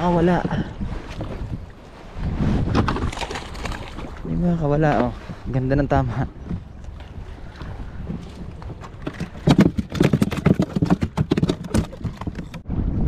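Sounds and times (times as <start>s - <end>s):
wind on microphone: 0.0s - 13.0s
irregular knocks and slaps: 8.0s - 12.6s.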